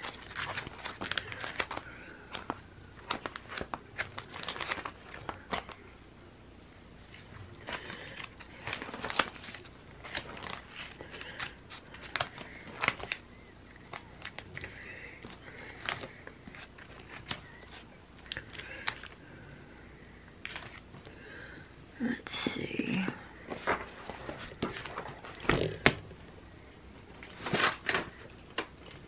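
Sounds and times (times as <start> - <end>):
plastic sheet protectors crinkling: 0.0 - 5.8, 7.6 - 13.2, 27.2 - 28.7.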